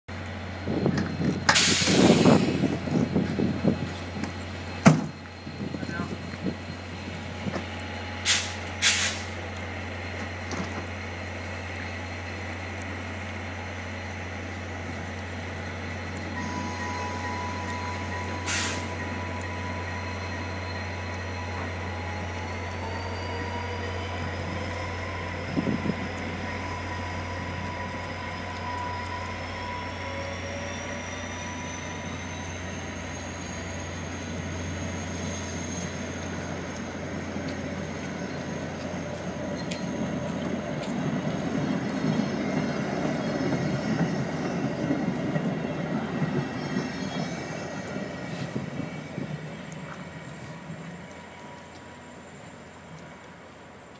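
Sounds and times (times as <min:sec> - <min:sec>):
diesel train engine hum: 0:00.1 - 0:53.9
sharp air bursts: 0:08.3 - 0:09.4.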